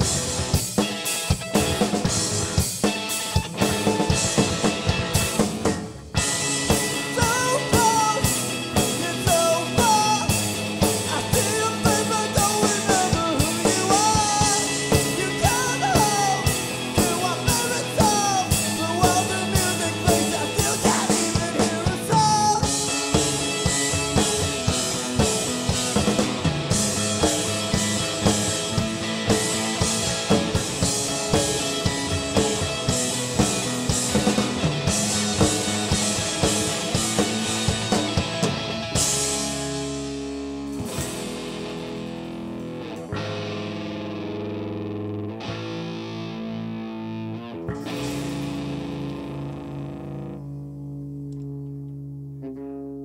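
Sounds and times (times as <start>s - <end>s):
rock band playing live: 0.0s - 53.0s
man singing: 7.1s - 10.4s, 11.0s - 23.0s.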